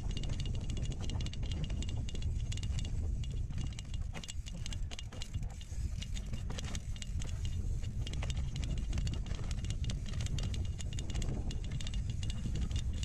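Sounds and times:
mountain bike rattling: 0:00.0 - 0:13.0.

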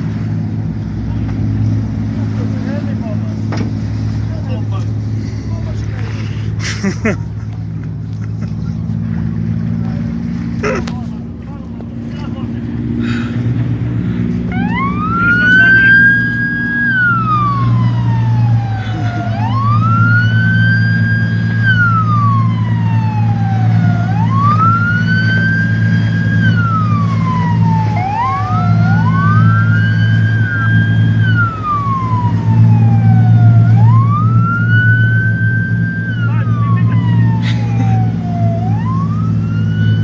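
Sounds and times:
boat engine droning: 0:00.0 - 0:40.0
siren wailing: 0:14.2 - 0:40.0.

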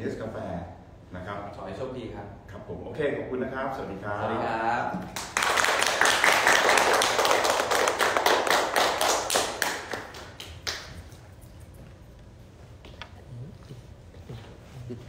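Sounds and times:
people clapping hands: 0:05.0 - 0:11.4.

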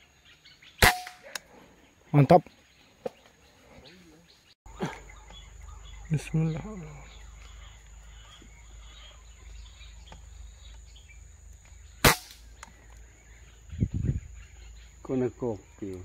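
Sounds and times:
air rifle shot: 0:00.8 - 0:01.4, 0:12.0 - 0:12.4.

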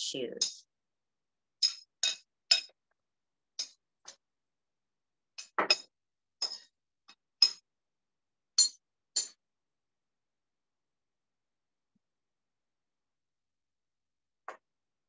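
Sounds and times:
metal utensil clinking on dish: 0:05.4 - 0:06.7.

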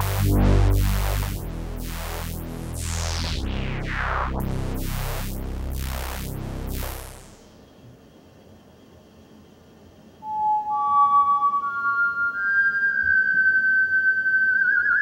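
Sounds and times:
synthesizer low notes filter sweeping: 0:00.0 - 0:07.6.

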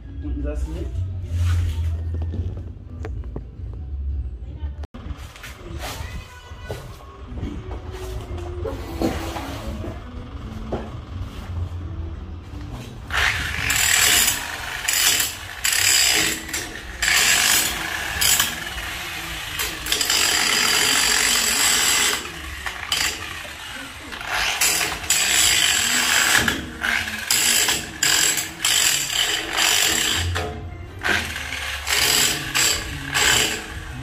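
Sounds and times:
cordless power tool rattling: 0:13.1 - 0:33.9.

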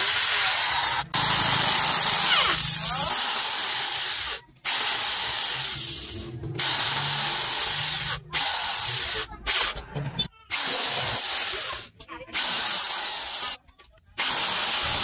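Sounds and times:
electric drill boring through wood: 0:00.0 - 0:09.2, 0:14.2 - 0:15.0.

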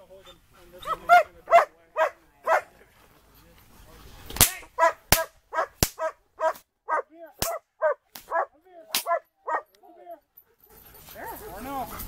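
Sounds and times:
dog barking: 0:00.8 - 0:02.7, 0:04.8 - 0:09.8, 0:10.6 - 0:11.9
sharp cracks: 0:04.3 - 0:06.7, 0:07.4 - 0:09.2.

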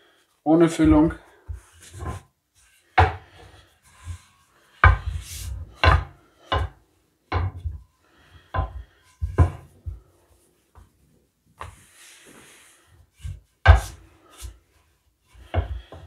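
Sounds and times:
rolling pin knocking and scraping: 0:00.8 - 0:10.1, 0:13.1 - 0:16.0.

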